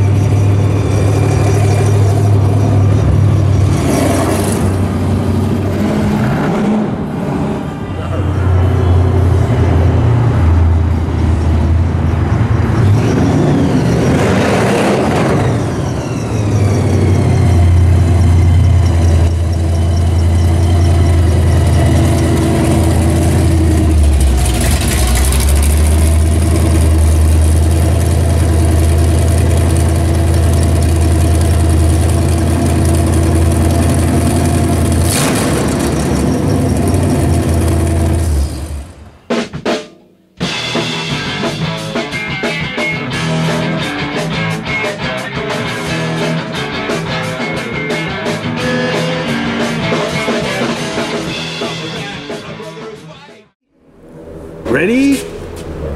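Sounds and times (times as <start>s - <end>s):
supercharger whine: 0.0s - 39.2s, 53.7s - 55.9s
loud engine idling and revving: 0.0s - 39.3s, 40.5s - 52.7s, 53.6s - 55.9s.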